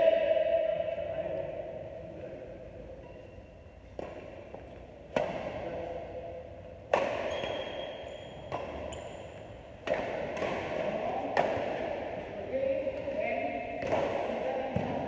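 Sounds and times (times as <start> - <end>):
rackets hitting shuttlecock: 3.8 - 15.0
shoes squeaking on court: 7.2 - 9.6.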